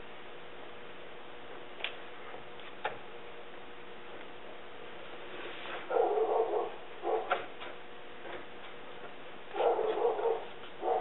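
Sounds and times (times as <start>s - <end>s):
dog barking: 5.9s - 7.5s, 9.5s - 11.0s.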